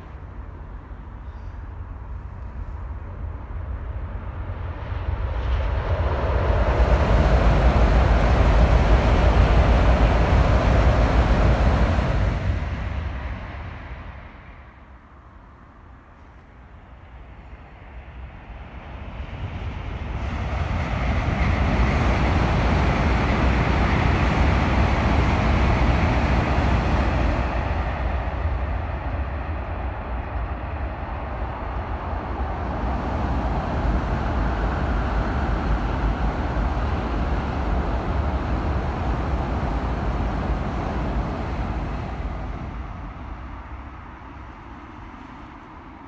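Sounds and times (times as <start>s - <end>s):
high-speed train passing: 0.0s - 46.0s.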